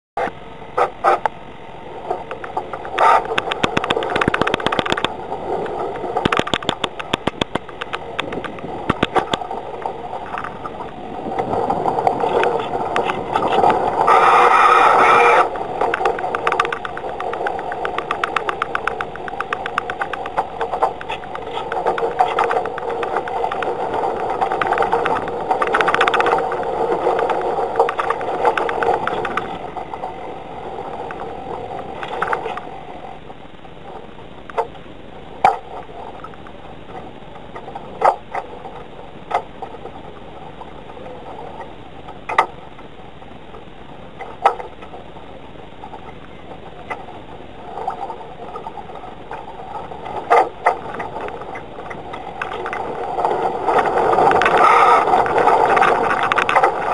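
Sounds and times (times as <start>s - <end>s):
mechanical whirring: 0.2s - 56.9s
rapid clicking and ticking: 2.1s - 30.1s, 45.8s - 56.9s.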